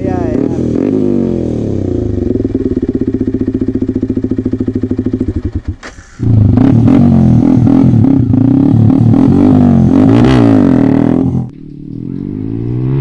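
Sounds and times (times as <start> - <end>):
motorcycle engine idling: 0.0 - 6.6.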